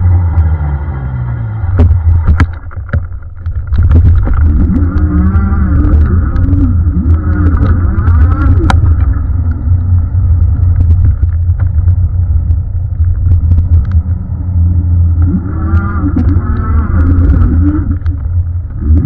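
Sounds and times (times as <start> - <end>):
wind and tyres rumbling on asphalt: 0.0 - 19.0
small rattles: 1.8 - 14.2.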